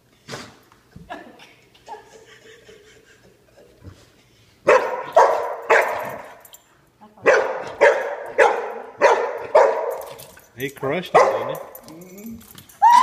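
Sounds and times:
dog barking: 4.7 - 6.4, 7.2 - 10.2, 11.1 - 11.7.

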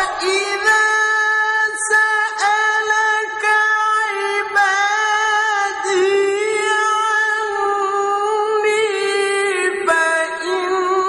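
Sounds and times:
man reciting melodically: 0.0 - 11.0.

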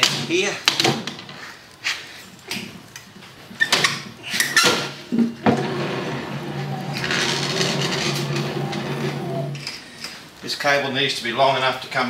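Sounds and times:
low hum: 5.4 - 9.8.

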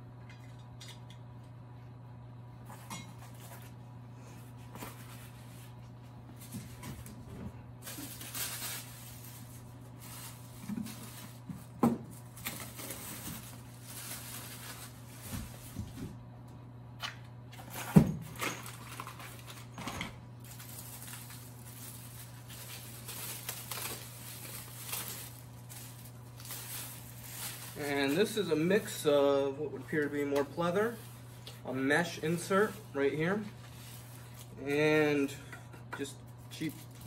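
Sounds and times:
steady low hum: 0.0 - 37.0
plastic and cardboard rustling: 4.6 - 16.2, 17.6 - 29.1, 29.8 - 34.5.

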